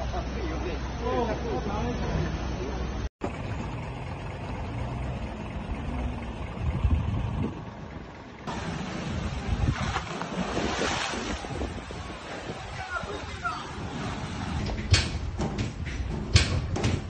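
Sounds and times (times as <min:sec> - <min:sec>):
low rumble: 0:03.2 - 0:16.2
wind on microphone: 0:06.4 - 0:07.8, 0:08.9 - 0:16.9
water surging and sloshing: 0:08.2 - 0:15.5.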